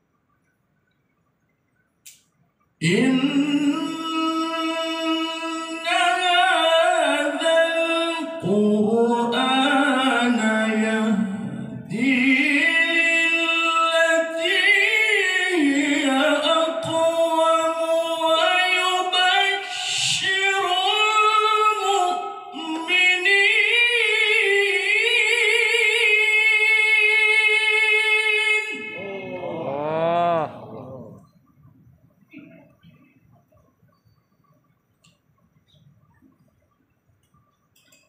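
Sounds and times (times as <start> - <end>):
solo voice chanting: 2.8 - 31.3.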